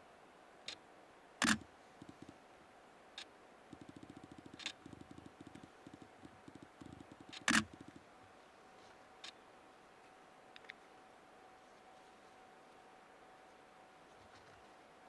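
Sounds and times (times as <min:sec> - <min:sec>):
faint steady hum: 0:00.0 - 0:15.0
sharp camera clicks: 0:01.4 - 0:02.3, 0:03.8 - 0:08.0
rapid low ticking: 0:01.4 - 0:02.4, 0:03.7 - 0:08.1.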